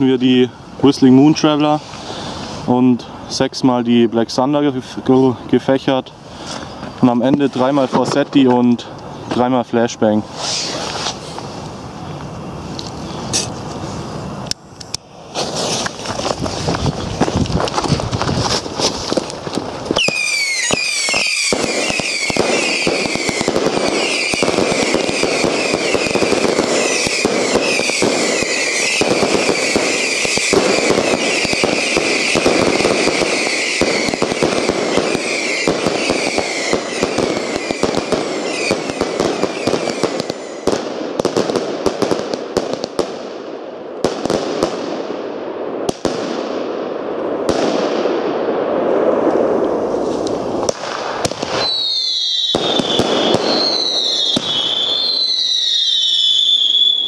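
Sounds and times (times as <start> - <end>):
firework reports and crackle: 0.0 - 12.0, 15.2 - 43.4, 47.4 - 57.0
firework whistles: 1.6 - 2.7, 10.2 - 11.6, 19.9 - 41.5, 49.4 - 57.0
warbling firework whistle: 20.0 - 40.9, 51.4 - 57.0.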